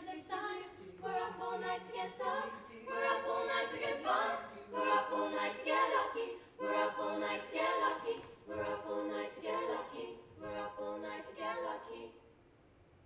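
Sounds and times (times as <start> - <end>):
women singing in harmony: 0.0 - 12.2.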